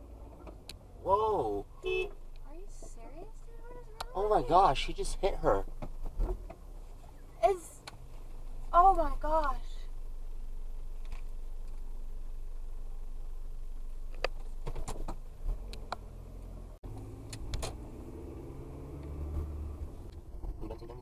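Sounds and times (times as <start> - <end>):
car engine moving slowly: 0.0 - 21.0
car idling: 0.0 - 21.0.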